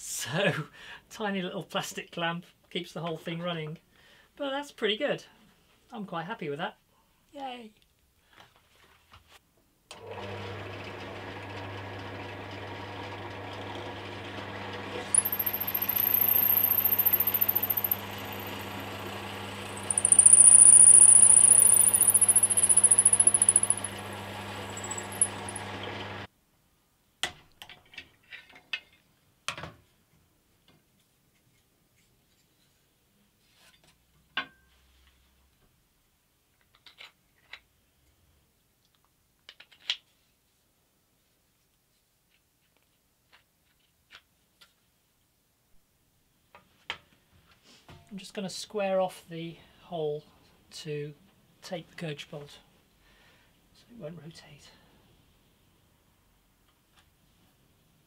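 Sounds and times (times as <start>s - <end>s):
pillar drill motor running: 10.2s - 26.3s
drill bit squealing into wood: 15.0s - 18.9s, 19.6s - 24.0s, 24.6s - 25.7s.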